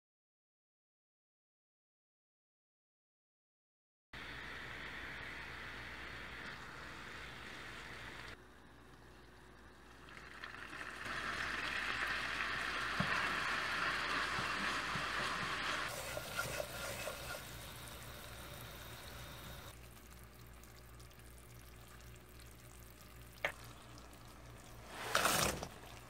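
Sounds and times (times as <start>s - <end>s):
butter sizzling in a frying pan: 10.1s - 20.6s.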